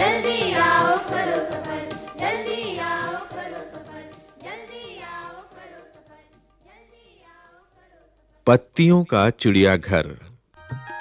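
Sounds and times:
children's song with instruments: 0.0s - 8.6s.

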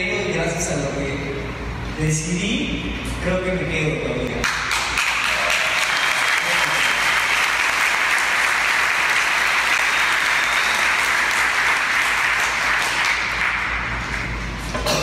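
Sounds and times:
audience applauding: 4.4s - 14.4s.

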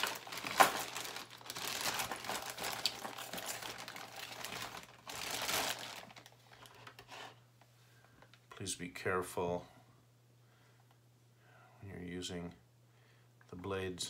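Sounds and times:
rustling and crinkling: 0.0s - 8.6s.

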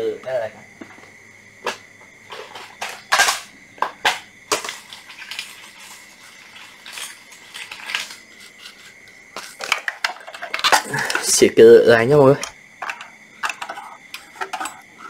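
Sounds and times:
metal tools clinking and knocking: 2.3s - 3.5s, 4.5s - 15.0s.

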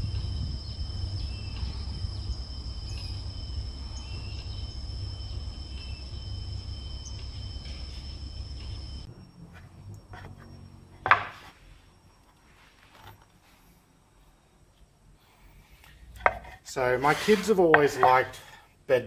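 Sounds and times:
low rumble: 0.0s - 11.0s
insect chirps: 0.0s - 18.8s
insects droning: 0.0s - 19.0s.

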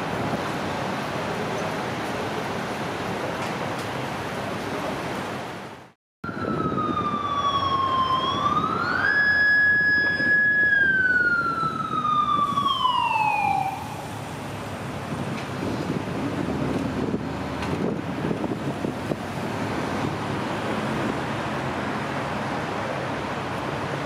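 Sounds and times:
road traffic noise: 0.0s - 24.0s
motorcycle siren wailing: 6.2s - 14.1s.

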